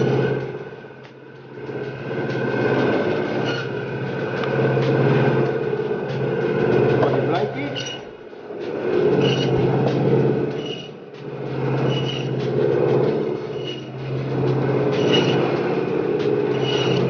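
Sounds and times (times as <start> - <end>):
band saw cutting meat: 1.9 - 8.2, 9.1 - 11.0, 11.6 - 17.0.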